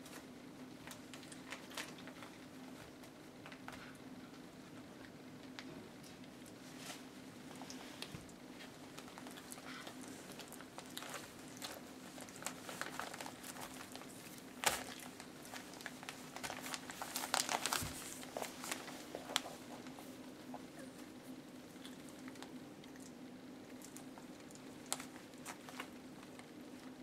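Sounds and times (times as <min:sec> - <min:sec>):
faint steady hum: 0:00.0 - 0:27.0
newspaper crinkling and rustling: 0:08.6 - 0:20.2, 0:23.9 - 0:26.5.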